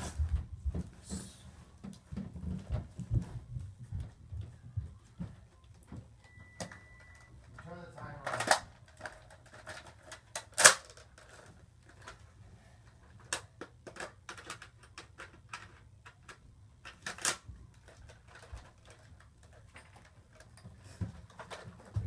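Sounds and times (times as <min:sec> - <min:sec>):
plastic toy blaster clicking: 0:09.7 - 0:11.0.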